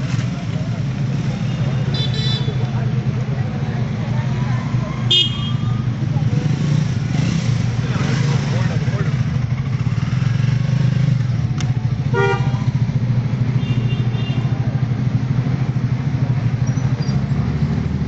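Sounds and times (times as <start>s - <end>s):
car engines running at low revs: 0.0s - 18.0s
car horn toot: 1.4s - 2.6s, 5.1s - 5.8s, 12.1s - 12.7s, 13.6s - 14.5s.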